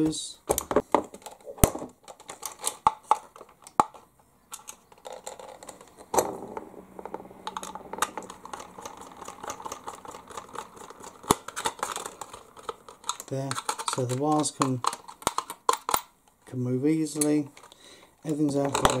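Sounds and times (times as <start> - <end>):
low steady hum: 3.4 - 19.0.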